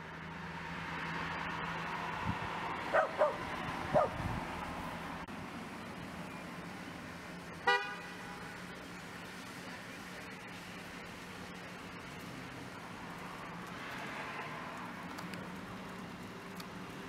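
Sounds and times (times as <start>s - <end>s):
street traffic: 0.0s - 17.0s
dog yapping: 2.9s - 4.2s
car horn toot: 7.6s - 8.5s.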